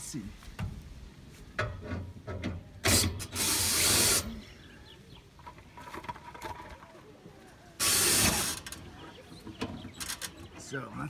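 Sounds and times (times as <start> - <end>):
cordless drill running: 3.2 - 4.3, 7.8 - 8.7.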